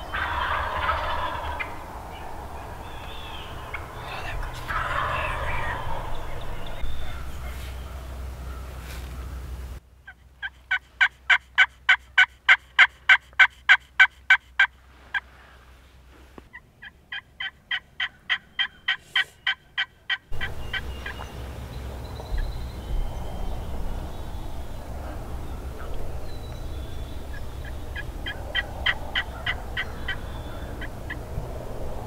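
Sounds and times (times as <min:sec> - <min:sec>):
turkey call hen yelps: 0:00.0 - 0:01.7, 0:02.9 - 0:08.7, 0:27.3 - 0:31.2
steady low rushing: 0:00.0 - 0:09.8, 0:20.2 - 0:32.0.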